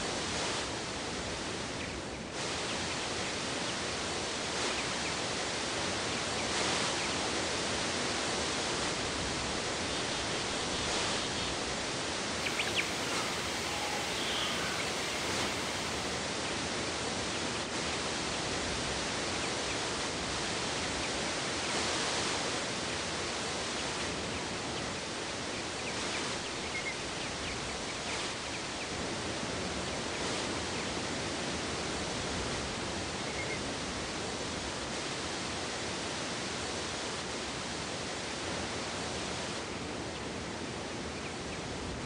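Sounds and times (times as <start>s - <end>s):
steady rushing noise: 8.8s - 16.5s
faint high chirps: 12.4s - 16.2s.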